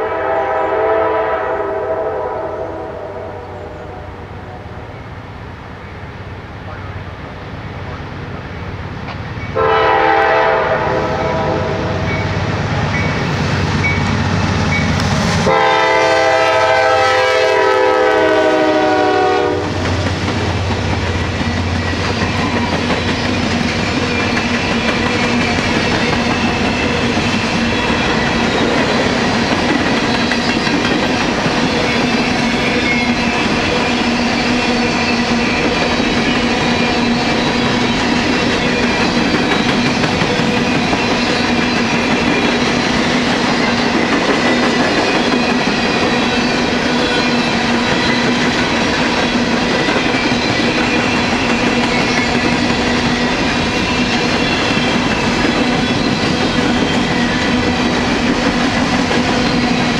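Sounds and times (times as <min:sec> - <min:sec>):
train horn chord blasts: 0:00.0 - 0:04.8, 0:09.6 - 0:12.2, 0:15.4 - 0:19.8
diesel locomotives rumbling: 0:00.0 - 0:59.9
train wheels clacking over rail joints: 0:19.4 - 0:59.9.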